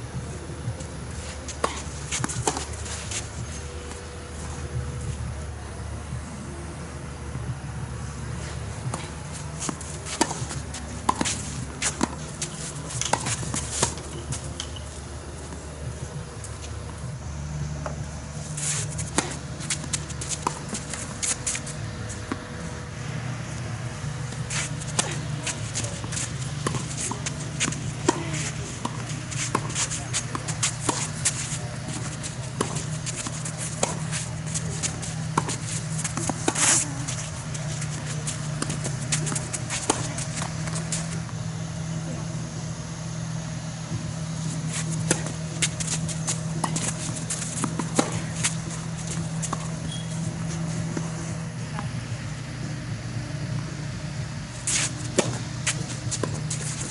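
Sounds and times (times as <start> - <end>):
low hum: 0.0 - 56.9
steady low rumble: 0.0 - 56.9
shoes scuffing on clay: 0.8 - 5.2, 8.4 - 14.8, 18.5 - 22.4, 24.2 - 41.3, 44.4 - 51.2
racket striking ball: 8.9 - 14.8, 19.0 - 21.6, 24.2 - 41.2, 44.6 - 51.2, 54.7 - 56.9.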